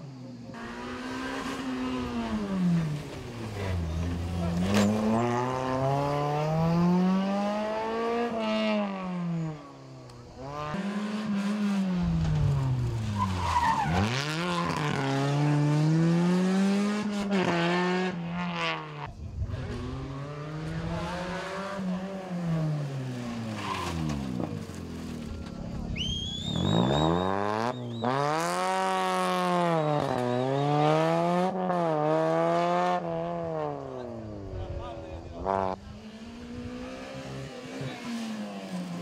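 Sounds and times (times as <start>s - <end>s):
rally car engines revving: 0.0s - 39.0s
tyre squeal: 13.0s - 14.5s, 23.4s - 24.6s, 25.2s - 28.4s.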